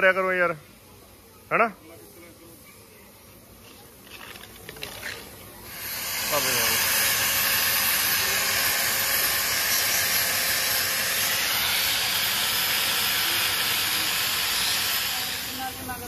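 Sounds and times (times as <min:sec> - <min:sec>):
spray-paint gun hissing: 0:00.2 - 0:16.0
angle grinder scrubbing metal: 0:05.7 - 0:16.0.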